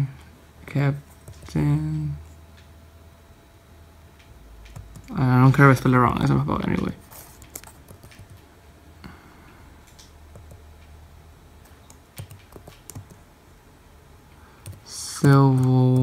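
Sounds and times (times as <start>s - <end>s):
computer keyboard typing: 1.1s - 1.6s, 4.6s - 5.7s, 7.2s - 8.4s, 9.8s - 10.9s, 11.6s - 13.2s, 14.6s - 16.0s.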